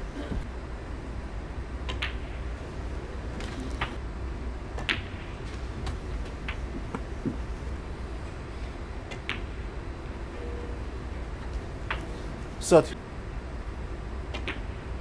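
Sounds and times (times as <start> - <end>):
low hum of hushed arena: 0.0 - 15.0
snooker balls clicking: 1.8 - 2.4, 4.8 - 7.5, 9.1 - 9.7.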